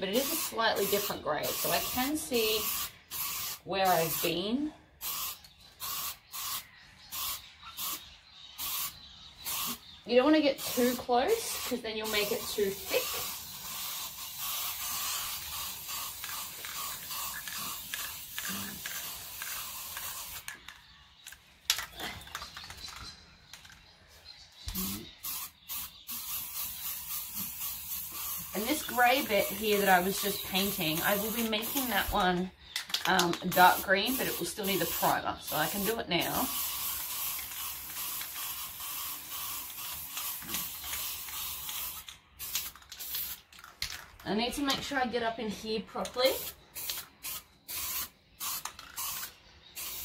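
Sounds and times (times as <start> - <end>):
aerosol can spraying hiss: 0.1 - 4.3, 5.0 - 8.0, 8.6 - 9.8, 10.6 - 20.6, 24.7 - 32.2, 33.5 - 43.4, 46.4 - 50.0.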